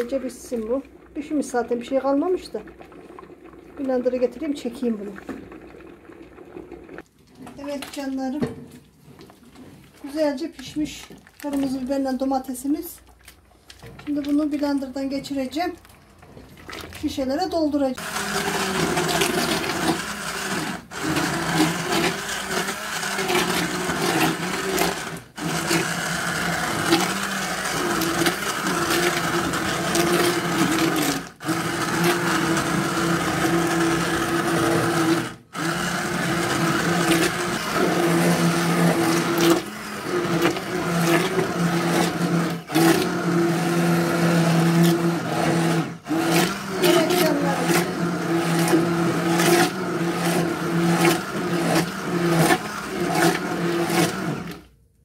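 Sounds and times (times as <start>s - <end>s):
stick blender motor humming: 18.0s - 54.7s.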